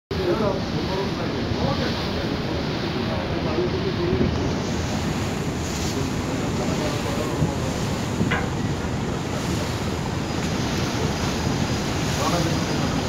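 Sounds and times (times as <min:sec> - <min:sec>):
river water washing: 0:00.1 - 0:13.0
wind on microphone: 0:04.1 - 0:13.0.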